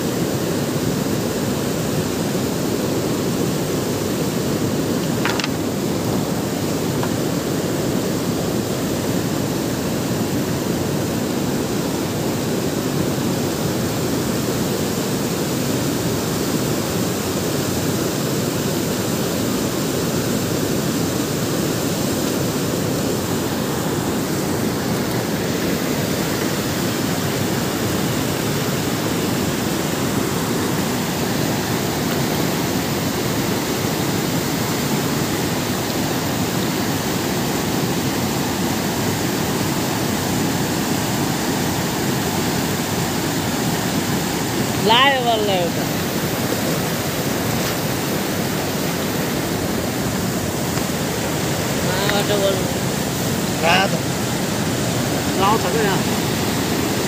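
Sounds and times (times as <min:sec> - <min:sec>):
stream rushing over rocks: 0:00.0 - 0:57.0.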